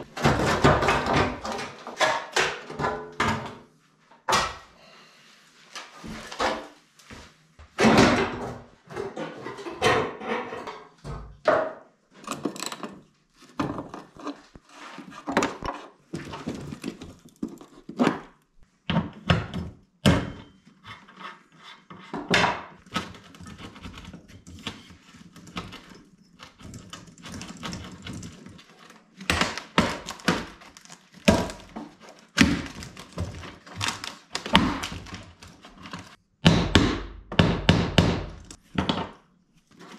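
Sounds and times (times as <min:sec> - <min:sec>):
tools and metal panels clattering: 0:00.0 - 0:03.6, 0:07.8 - 0:13.0.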